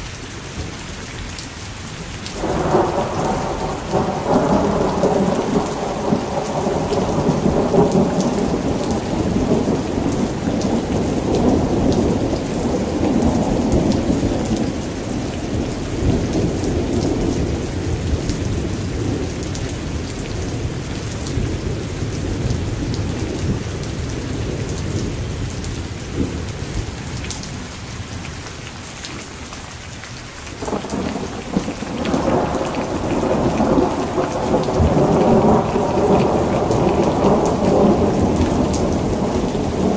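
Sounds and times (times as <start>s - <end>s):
steady rain: 0.0s - 39.9s
rolling thunder: 2.4s - 19.8s, 30.6s - 39.9s.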